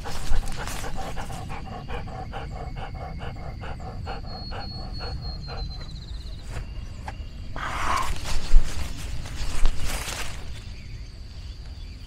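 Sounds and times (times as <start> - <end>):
dog panting: 0.0 - 6.2.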